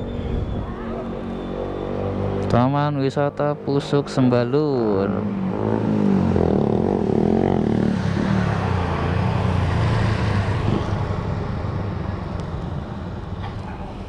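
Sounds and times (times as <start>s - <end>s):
wind noise: 0.0s - 0.9s.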